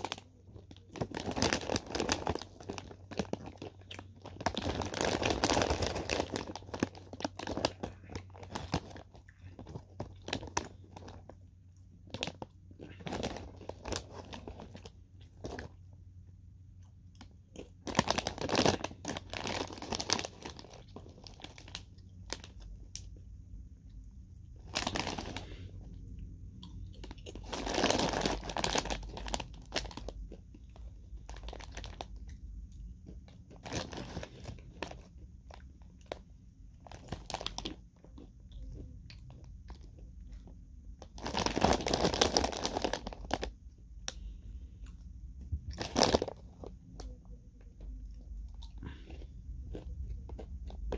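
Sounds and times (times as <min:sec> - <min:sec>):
plastic snack bag rustling: 0:00.0 - 0:11.4, 0:12.0 - 0:15.8, 0:17.6 - 0:23.0, 0:24.6 - 0:25.8, 0:27.0 - 0:32.3, 0:33.5 - 0:36.2, 0:36.8 - 0:38.2, 0:41.0 - 0:43.5, 0:45.7 - 0:47.2
crunching and chewing chips: 0:00.0 - 0:50.9.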